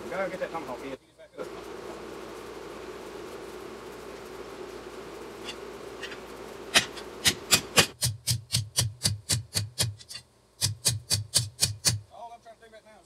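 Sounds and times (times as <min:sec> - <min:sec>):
hammer striking metal on anvil: 0:06.7 - 0:12.0.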